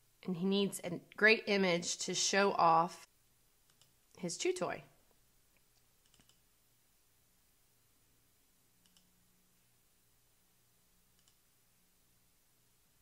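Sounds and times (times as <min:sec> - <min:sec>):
faint computer mouse clicks: 0:05.6 - 0:06.4, 0:08.8 - 0:09.1, 0:11.2 - 0:11.4.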